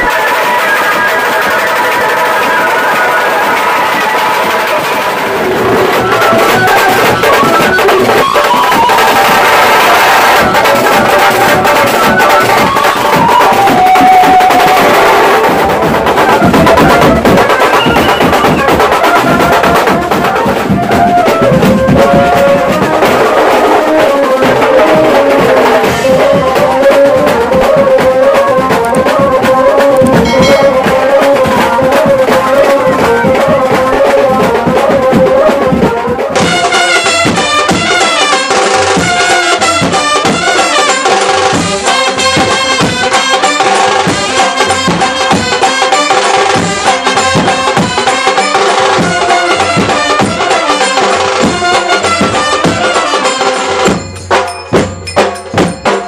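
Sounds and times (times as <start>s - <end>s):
fast dense drumming: 0.0s - 56.0s
wavering melody line: 10.4s - 36.3s.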